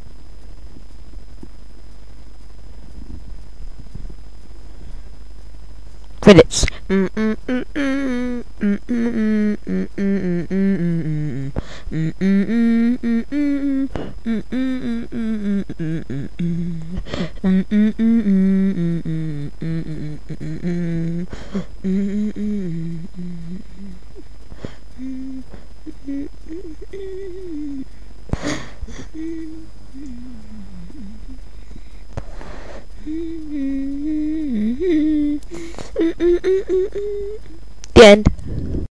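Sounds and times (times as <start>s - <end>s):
person humming a tune: 6.6s - 38.9s
breath: 11.6s - 11.9s, 17.0s - 17.4s, 31.6s - 32.9s, 35.5s - 35.9s, 38.4s - 38.8s.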